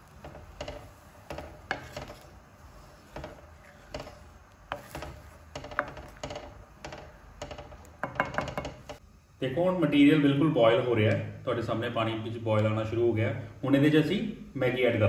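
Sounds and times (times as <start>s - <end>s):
spatula stirring in a wok: 0.0s - 9.0s.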